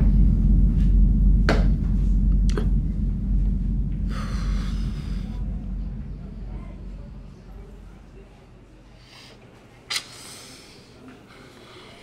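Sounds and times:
low rumble: 0.0 - 9.1.

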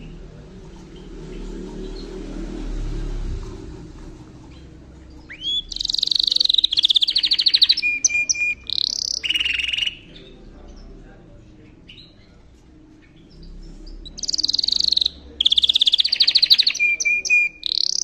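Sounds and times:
faint low rumble: 0.0 - 7.8
canary singing trills: 0.0 - 18.0.

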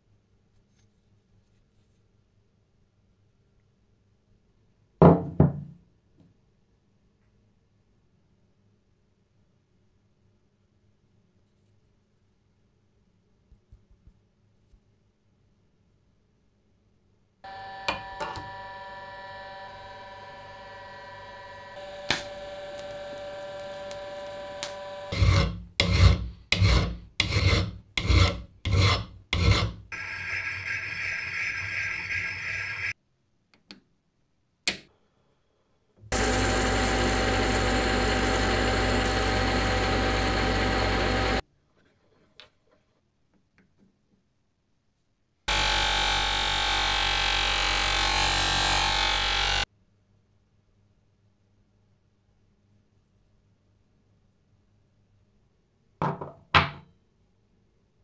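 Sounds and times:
machine running: 17.5 - 25.2, 36.1 - 41.4
metal rubbing on abrasive paper: 25.1 - 33.0.

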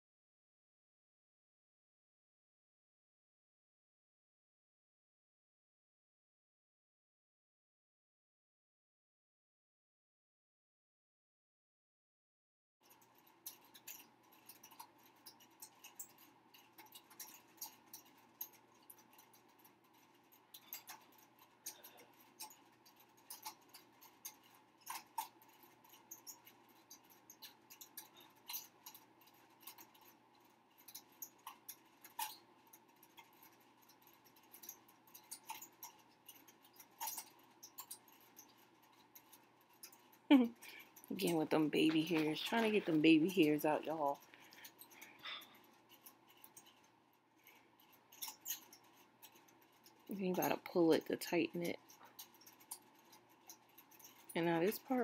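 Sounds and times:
comb scratching through hair: 41.2 - 44.4, 48.3 - 55.0.

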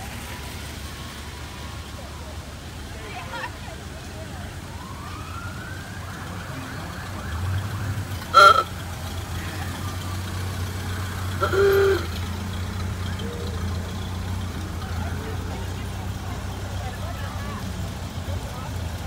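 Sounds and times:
car engines rumbling: 0.0 - 19.0
car horn honks: 8.2 - 9.2, 11.2 - 12.4.

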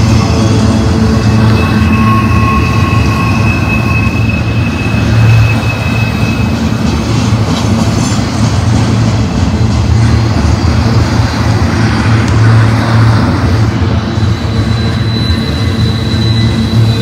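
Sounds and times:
high-pitched wheel squeal: 0.0 - 7.0, 12.4 - 17.0
train wheels rumbling on rail: 0.0 - 17.0.

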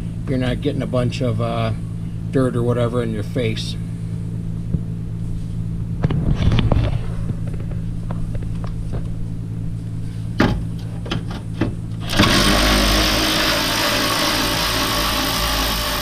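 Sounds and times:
steady low hum: 0.0 - 16.0
power ratchet running: 12.0 - 16.0.

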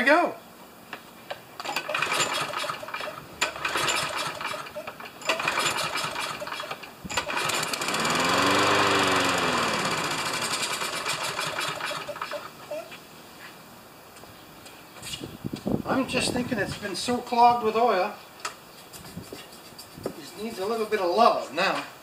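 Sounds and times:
lawn mower engine sputtering: 1.6 - 12.6.

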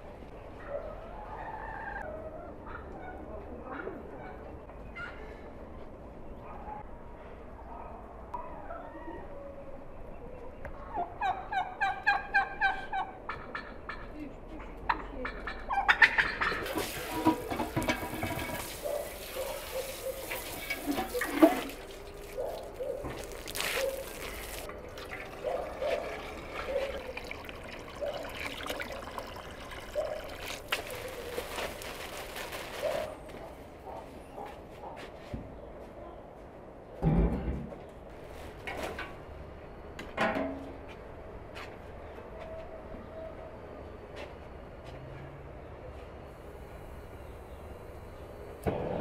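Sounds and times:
birds calling: 15.4 - 31.5
hose water splashing into metal: 16.6 - 31.0.

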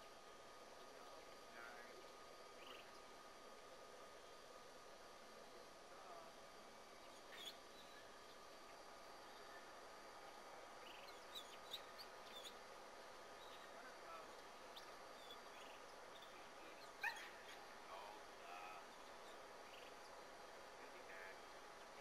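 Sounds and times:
distant dog yips and whimpers: 16.8 - 17.6.

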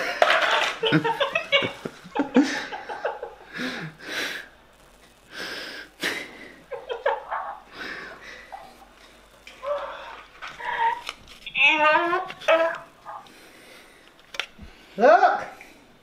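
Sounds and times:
quiet breathy laughter: 0.0 - 4.4, 5.8 - 11.1.

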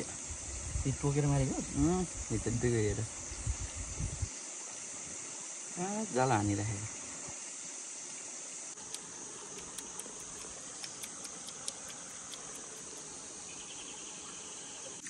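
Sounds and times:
high-pitched insect chorus: 0.0 - 15.0
faint clicks: 8.8 - 13.0.

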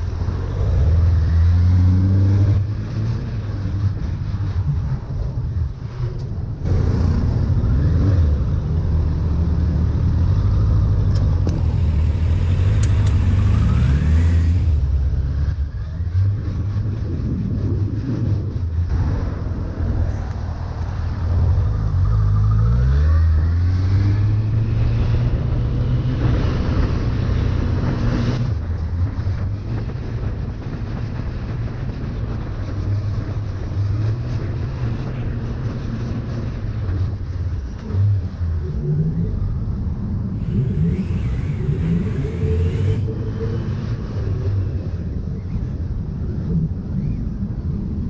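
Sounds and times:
wind rushing: 0.0 - 48.0
motorcycle engine running: 6.6 - 17.1.

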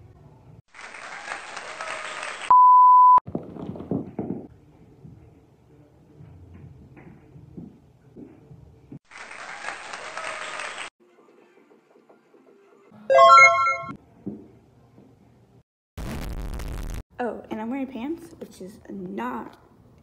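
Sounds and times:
electronic bleep: 13.1 - 14.0.

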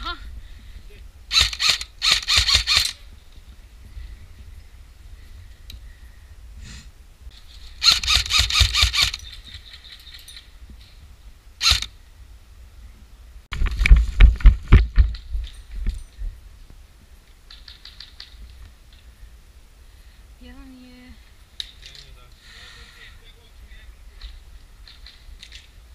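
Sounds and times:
airsoft gun shots: 1.3 - 3.0, 7.8 - 9.2
close knocks and thumps: 13.5 - 16.0.

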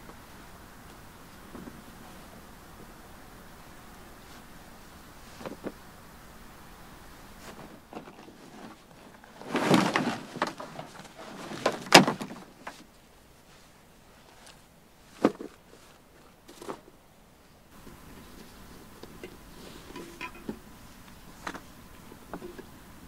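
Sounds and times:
camping gear rustling and knocking: 5.3 - 5.8, 7.4 - 13.0, 14.2 - 17.0.

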